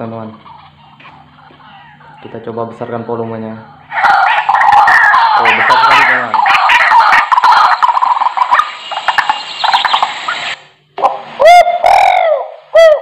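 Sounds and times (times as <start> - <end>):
electronic bird caller chirping: 2.9 - 10.6
loud falling bird calls: 4.0 - 10.6.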